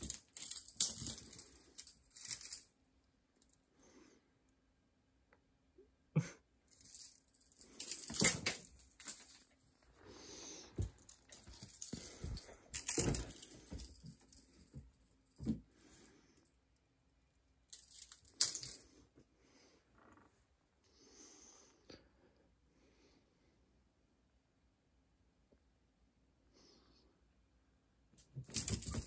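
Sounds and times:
light rattling: 10.8s - 15.6s, 28.4s - 29.0s.

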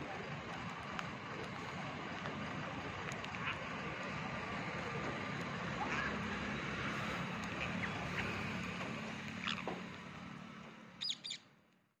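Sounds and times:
parakeets chirping: 6.9s - 8.6s, 9.4s - 9.7s, 11.0s - 11.4s
sharp high bird calls: 11.0s - 11.5s.

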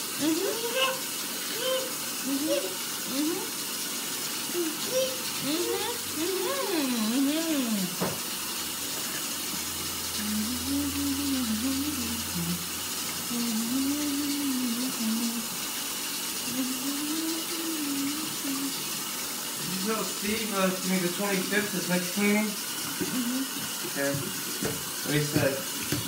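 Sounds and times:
running tap water: 0.0s - 26.0s
woman humming: 0.2s - 1.0s, 1.6s - 3.5s, 4.6s - 8.0s, 10.1s - 15.6s, 16.5s - 18.8s, 23.0s - 23.6s
higher voice swooping: 0.2s - 3.5s.

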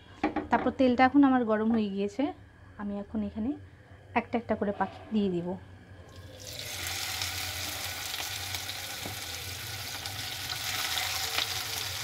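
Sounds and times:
quails sizzling in hot oil: 6.1s - 12.0s
oil crackling: 6.2s - 12.0s.

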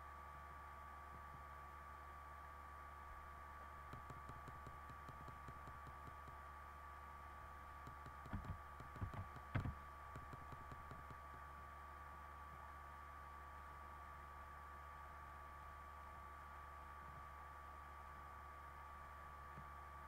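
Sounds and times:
steady electrical hum: 0.0s - 20.0s
mouse clicks: 7.8s - 11.2s
computer keyboard typing: 7.9s - 11.1s.

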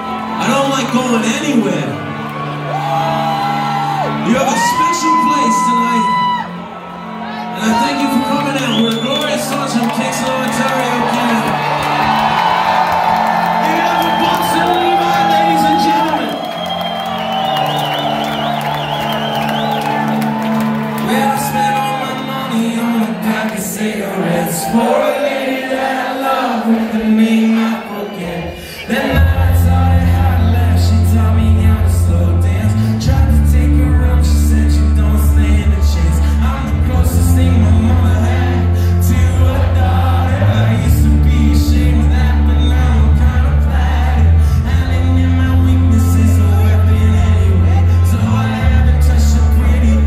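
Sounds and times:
person singing: 26.3s - 50.0s
heavy boomy bass: 29.1s - 50.0s.

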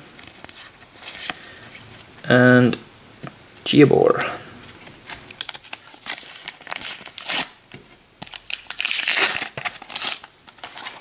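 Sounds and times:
wrapper crinkling: 4.8s - 7.6s, 8.2s - 11.0s
sticker packet tearing: 5.4s - 7.6s, 8.2s - 11.0s.

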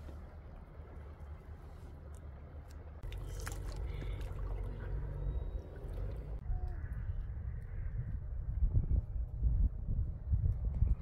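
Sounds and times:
river water splashing: 0.0s - 6.4s.

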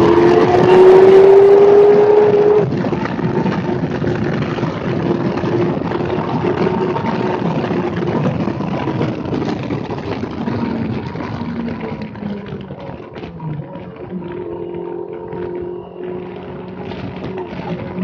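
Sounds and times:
motorcycle engine revving: 0.0s - 18.0s
wind noise: 0.0s - 18.0s.

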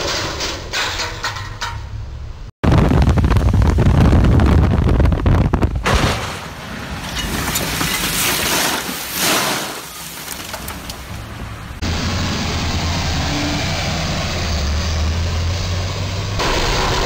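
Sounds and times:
heavy crash rumble: 2.6s - 11.2s
debris pattering on windshield: 5.9s - 11.2s.

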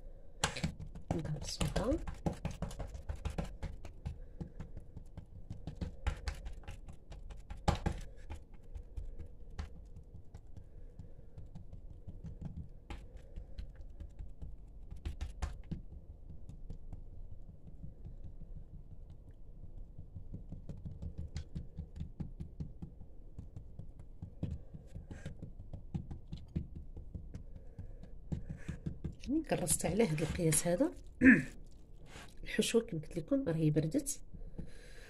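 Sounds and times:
hands patting dough flat: 0.0s - 32.8s.

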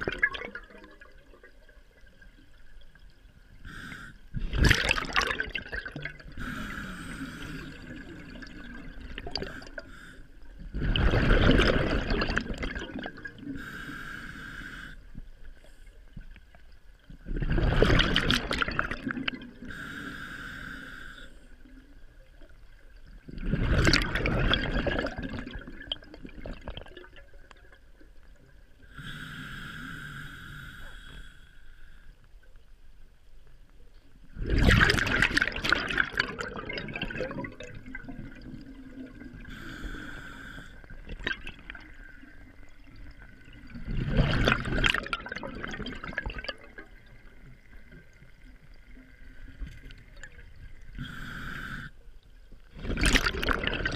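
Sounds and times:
exhaled bubbles bursting: 0.0s - 2.3s, 4.3s - 6.7s, 7.6s - 9.8s, 10.7s - 13.6s, 17.2s - 19.7s, 23.2s - 27.8s, 34.4s - 39.7s, 40.8s - 51.2s, 52.7s - 53.9s
regulator inhalation hissing: 51.0s - 52.0s.

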